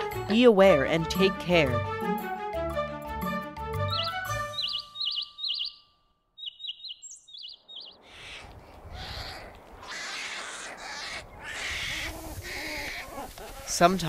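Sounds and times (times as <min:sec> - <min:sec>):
small birds chirping: 0:03.8 - 0:14.0.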